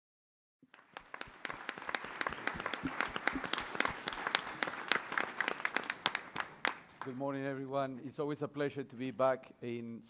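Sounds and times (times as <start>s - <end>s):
audience applauding: 0.7s - 7.2s.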